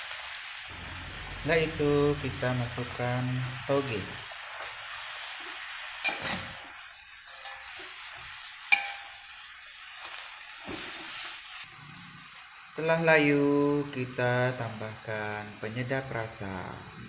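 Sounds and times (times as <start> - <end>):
vegetables sizzling in a wok: 0.0 - 17.0
metal spatula scraping wok: 6.0 - 12.4
spatula clinking against wok: 8.7 - 9.3.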